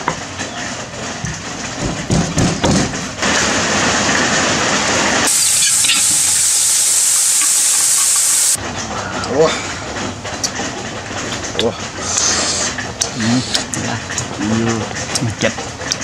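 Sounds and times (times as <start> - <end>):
paste sizzling in a wok: 5.3 - 8.6.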